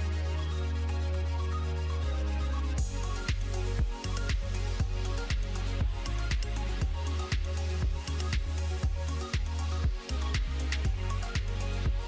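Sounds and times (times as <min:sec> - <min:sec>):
electronic dance music: 0:02.8 - 0:12.0.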